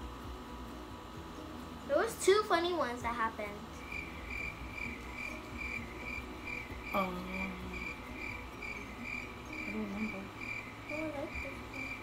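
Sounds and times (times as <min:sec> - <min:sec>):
insect chirping: 0:03.8 - 0:12.0.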